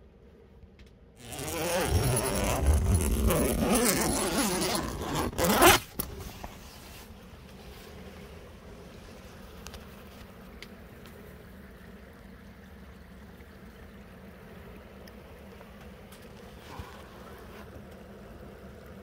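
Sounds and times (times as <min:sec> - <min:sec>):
tent zipper being unzipped: 0:01.2 - 0:07.1.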